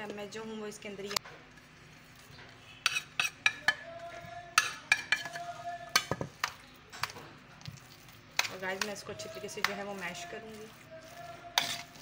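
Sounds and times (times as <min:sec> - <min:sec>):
metal spoon scraping steel bowl: 0:02.6 - 0:03.8, 0:04.5 - 0:07.2, 0:08.4 - 0:12.0.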